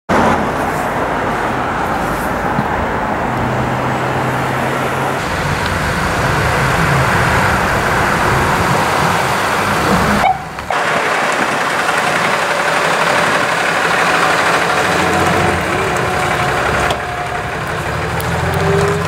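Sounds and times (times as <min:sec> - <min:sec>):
low engine hum: 0:00.1 - 0:19.0
road traffic rushing: 0:00.1 - 0:19.0.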